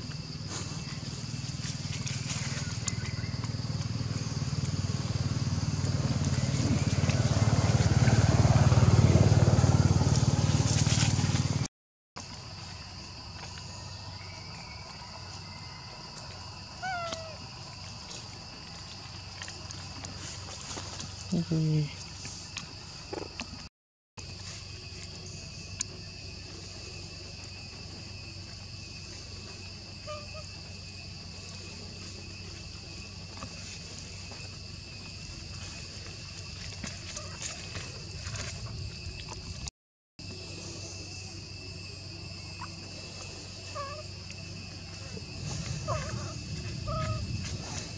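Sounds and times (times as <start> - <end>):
insect drone: 0.0 - 47.9
small engine running: 1.6 - 11.7.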